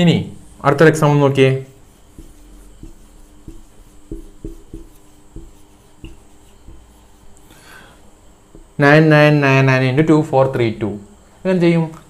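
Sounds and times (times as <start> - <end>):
marker writing on whiteboard: 0.4 - 7.6, 8.5 - 8.8.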